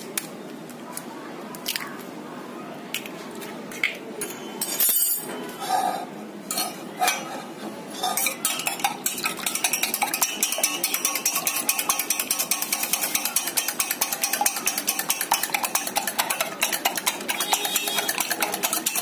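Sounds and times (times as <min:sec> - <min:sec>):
whisk beating eggs in metal bowl: 0:08.0 - 0:19.0.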